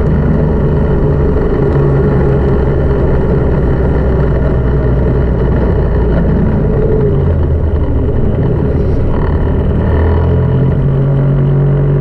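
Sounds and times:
snowmobile engine running: 0.0 - 12.0.

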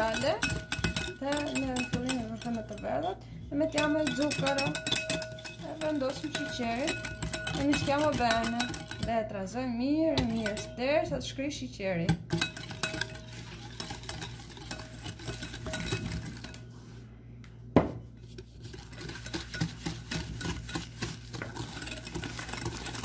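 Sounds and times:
hand whisk clicking against glass bowl: 3.8 - 9.1.

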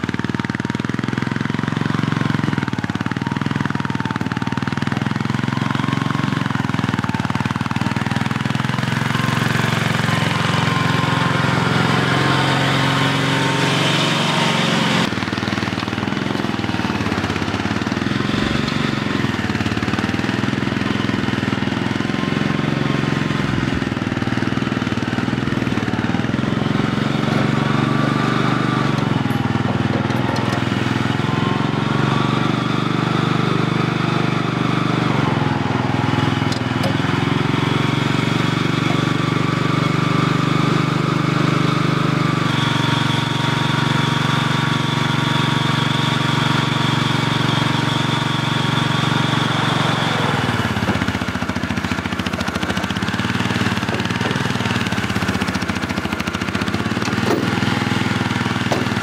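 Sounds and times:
loader engine running: 0.0 - 59.0.

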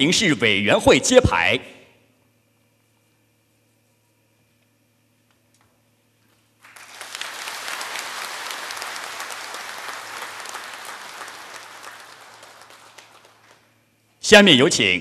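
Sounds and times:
crowd applauding: 6.6 - 13.8.

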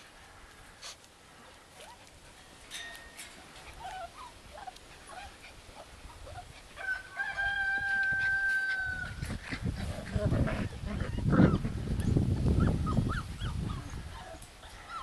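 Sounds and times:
rooster crowing: 6.8 - 9.2.

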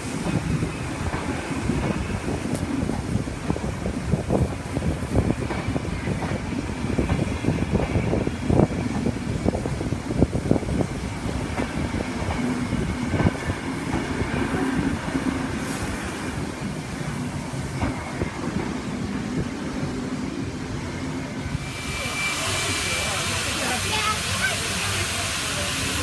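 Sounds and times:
low rumble of rolling carriages: 0.0 - 26.0.

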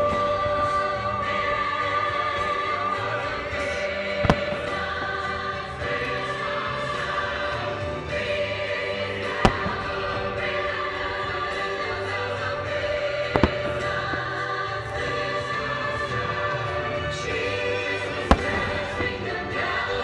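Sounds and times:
choral music: 0.0 - 20.0
sharp firework bangs: 9.3 - 10.5, 18.3 - 19.8.

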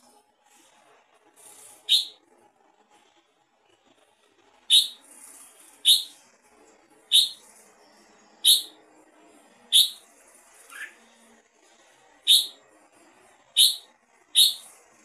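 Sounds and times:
bird chirping: 1.9 - 2.2, 4.7 - 5.0, 5.8 - 6.2, 7.1 - 8.8, 9.7 - 10.0, 10.7 - 11.0, 12.3 - 12.6, 13.6 - 14.7.

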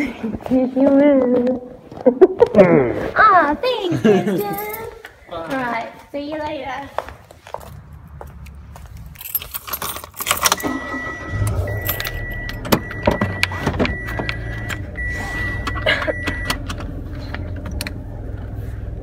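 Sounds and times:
keys jangling: 4.3 - 4.9, 9.0 - 10.6, 11.7 - 12.2
car engine starting and idling: 7.6 - 19.0.

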